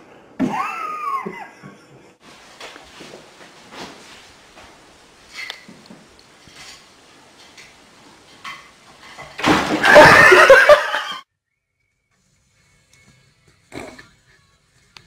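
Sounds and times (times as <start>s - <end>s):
person laughing hard: 0.4s - 2.2s, 9.8s - 11.2s.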